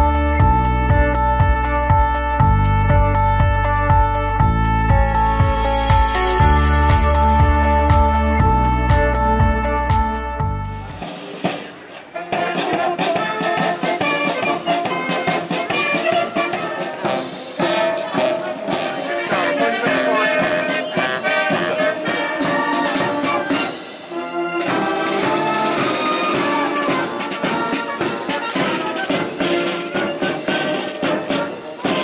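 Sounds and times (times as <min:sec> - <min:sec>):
brass band playing a march: 0:00.0 - 0:32.0.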